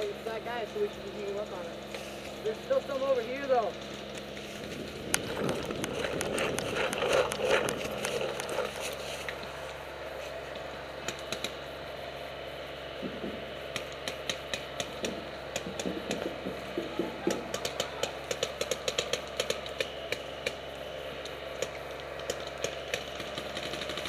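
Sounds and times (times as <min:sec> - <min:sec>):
footsteps crunching dry leaves: 0:03.5 - 0:10.8
paintball markers firing: 0:13.7 - 0:20.6.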